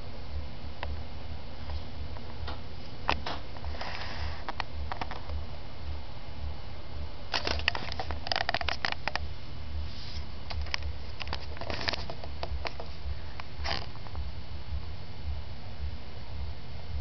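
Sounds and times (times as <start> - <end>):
steady low hum: 0.0 - 17.0
crackling taps and scratches: 7.4 - 9.3, 10.5 - 14.2.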